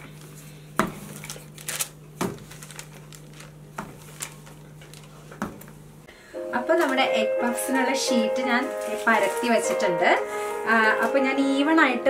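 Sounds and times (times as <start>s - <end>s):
paper crinkling: 1.0s - 5.4s, 8.6s - 10.0s.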